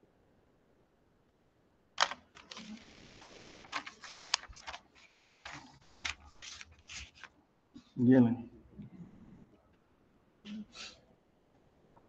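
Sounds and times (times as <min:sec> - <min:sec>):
paper rustling and crackling: 0:02.0 - 0:07.4.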